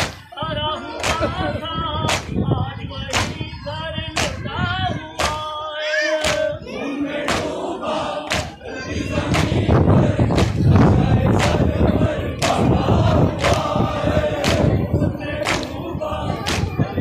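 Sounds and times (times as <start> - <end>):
person chanting a lament: 3.2 - 10.3
hands slapping chests: 5.2 - 5.4, 6.2 - 6.5, 8.3 - 8.6.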